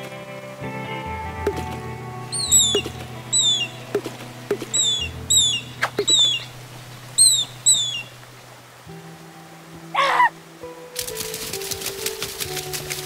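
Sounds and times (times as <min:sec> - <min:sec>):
soft background music: 0:00.0 - 0:13.0
cartoon squeaks falling in pitch: 0:02.4 - 0:03.8, 0:04.7 - 0:06.5, 0:07.2 - 0:08.1.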